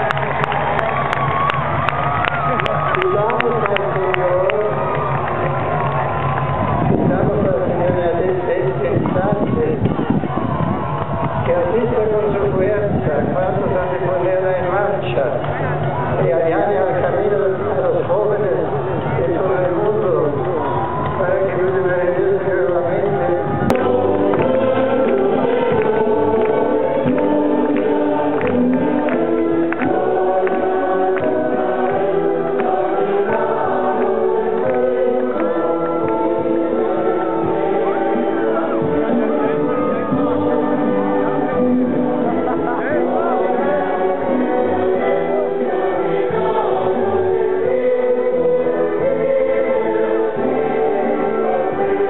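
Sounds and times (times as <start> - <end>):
musical accompaniment: 0.0 - 52.0
choir singing with instruments: 23.4 - 52.0.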